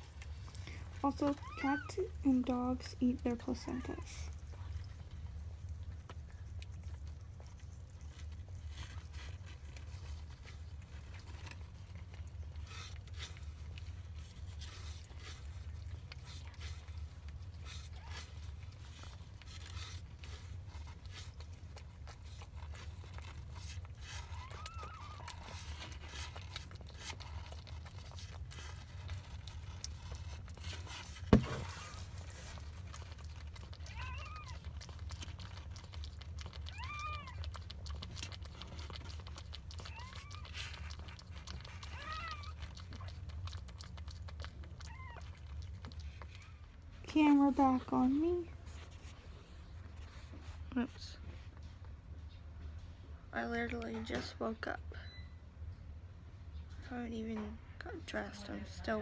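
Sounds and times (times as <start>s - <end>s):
cat licking with wet clicks: 32.1s - 46.4s.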